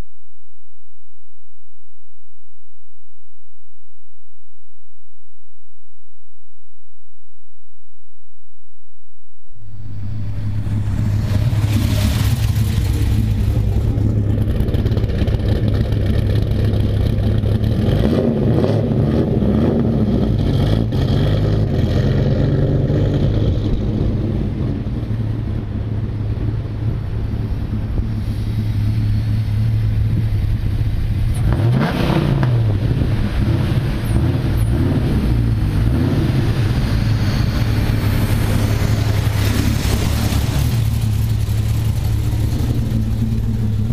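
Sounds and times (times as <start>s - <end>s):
car engine droning at low revs: 9.5s - 43.9s.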